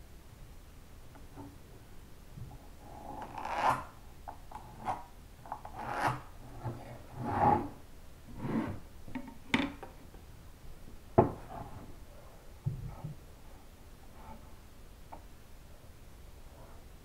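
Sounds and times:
wood scraping on workbench: 5.7s - 7.8s, 8.4s - 8.8s.

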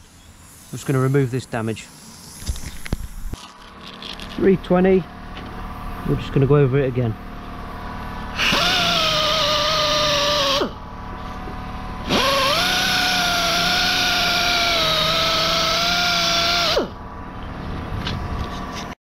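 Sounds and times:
pneumatic sander whining: 7.6s - 18.9s.

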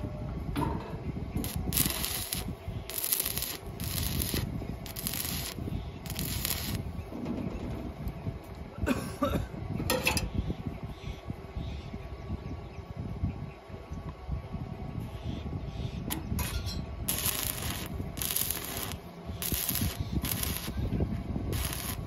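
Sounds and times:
welding arc crackling and hissing: 1.4s - 7.0s, 17.1s - 20.9s, 21.5s - 22.0s.

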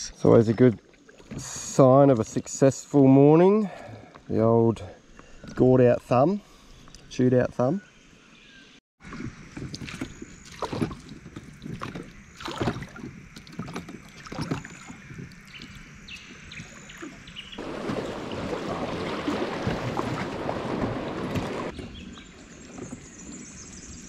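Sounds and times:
boat knocks and splashes: 0.4s - 1.9s, 9.0s - 24.0s
river rapids rushing: 17.6s - 21.7s.

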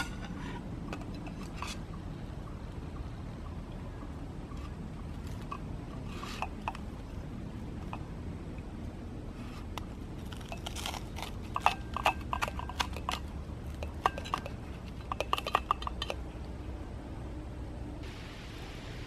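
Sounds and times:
toasted bread crackling and crunching: 10.2s - 13.2s.

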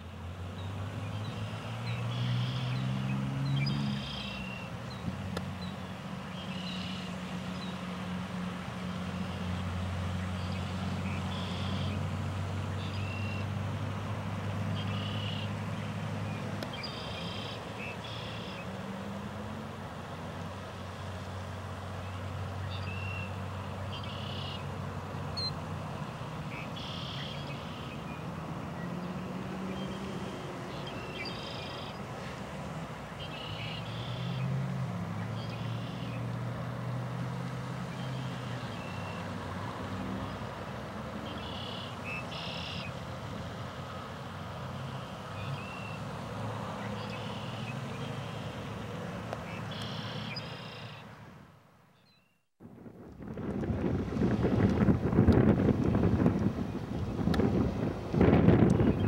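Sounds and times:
low rumble of traffic: 0.0s - 59.0s
short high bird calls: 26.5s - 28.0s, 41.3s - 42.9s, 49.5s - 51.1s.

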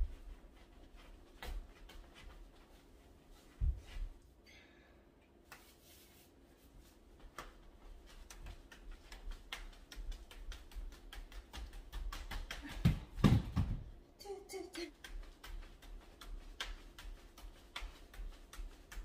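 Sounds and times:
hula hoop clicking: 7.4s - 13.8s.

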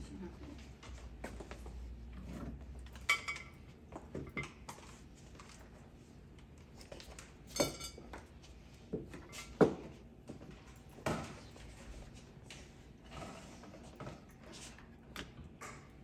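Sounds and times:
glass bowl clinking: 7.5s - 8.2s.

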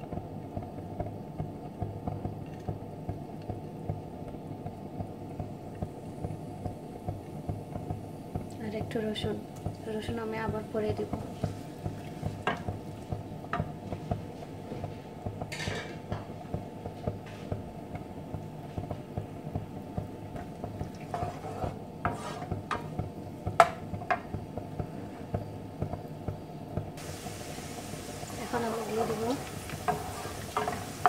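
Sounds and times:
steady low hum: 0.0s - 31.0s
onions frying in oil: 5.1s - 31.0s
wooden spatula scraping frying pan: 20.9s - 22.9s, 28.3s - 31.0s.

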